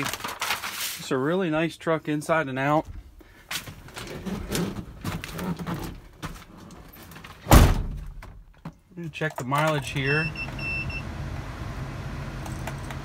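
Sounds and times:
truck door shutting thud: 0:07.5 - 0:08.2.

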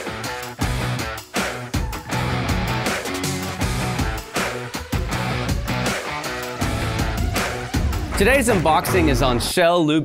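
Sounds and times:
intro music with strong beat: 0:00.0 - 0:09.4.

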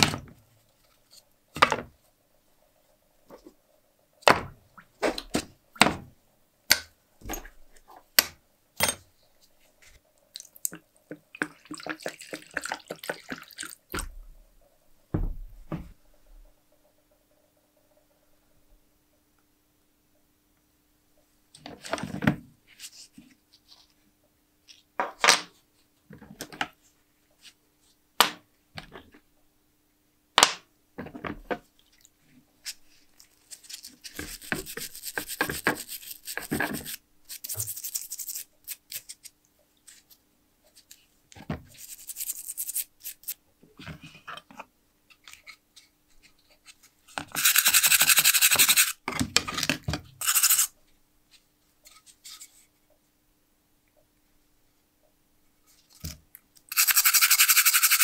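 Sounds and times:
wire brush scrubbing metal: 0:56.7 - 0:58.0.

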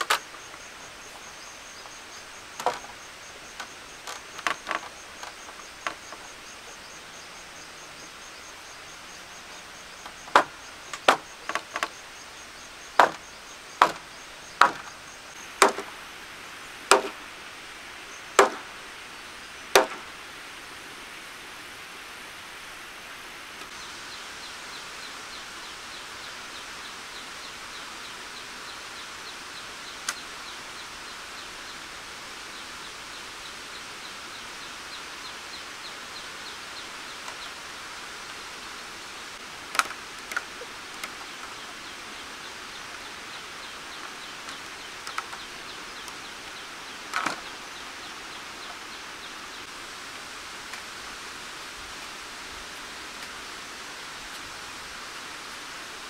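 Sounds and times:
wooden beams clacking: 0:00.0 - 0:00.6, 0:01.8 - 0:06.4, 0:09.9 - 0:12.0, 0:12.9 - 0:15.0, 0:15.6 - 0:16.0, 0:16.9 - 0:17.2, 0:18.4 - 0:18.7, 0:19.7 - 0:20.1
steady outdoor hiss: 0:00.0 - 0:56.0.

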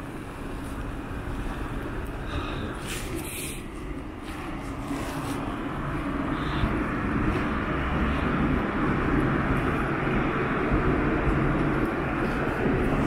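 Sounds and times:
motor traffic rumble: 0:00.0 - 0:13.0.

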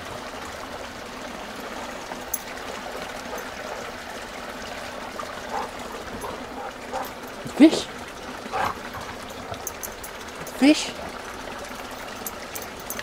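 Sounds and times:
water trickling into a pond: 0:00.0 - 0:13.0.

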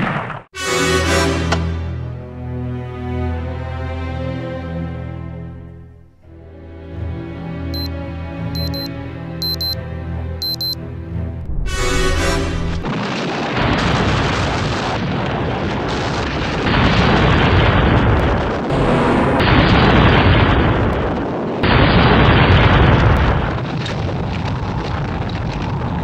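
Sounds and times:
explosions rumbling: 0:12.8 - 0:26.0.

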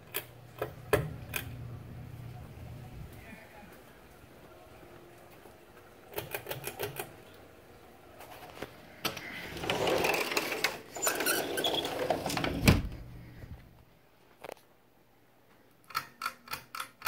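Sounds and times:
sliding glass door rumbling: 0:09.3 - 0:13.2
door shutting thud: 0:12.2 - 0:13.1.

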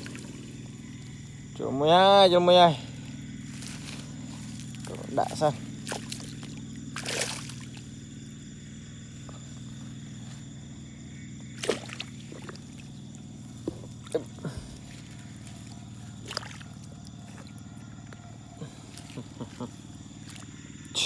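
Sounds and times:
steady low hum: 0:00.0 - 0:21.0
water splashing: 0:03.6 - 0:07.9, 0:11.6 - 0:17.6.

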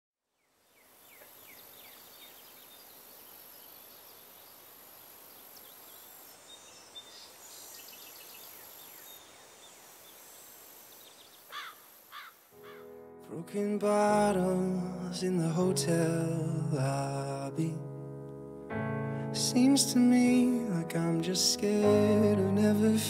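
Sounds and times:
bird chirps: 0:00.4 - 0:12.9
low background hiss: 0:00.4 - 0:18.6.

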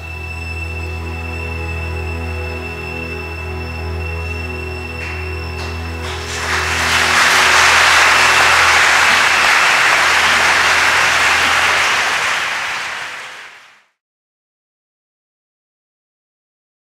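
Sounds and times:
orchestra chord: 0:02.9 - 0:12.3
audience applauding: 0:04.9 - 0:13.8.

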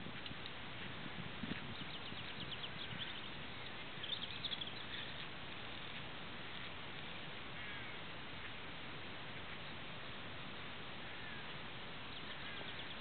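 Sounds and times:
steady background hiss: 0:00.0 - 0:13.0
small bird chirping: 0:01.5 - 0:06.0, 0:11.2 - 0:13.0.

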